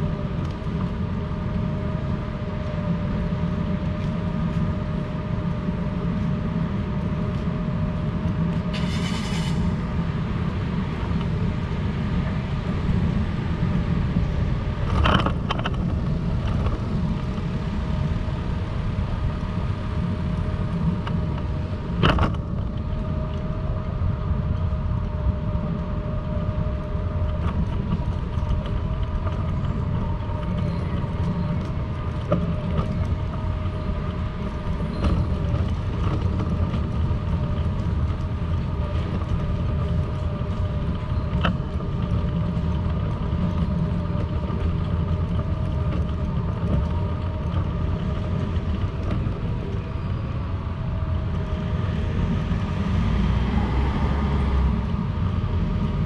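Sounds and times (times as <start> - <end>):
low traffic rumble: 0.0 - 56.0
brief hiss: 8.7 - 9.6.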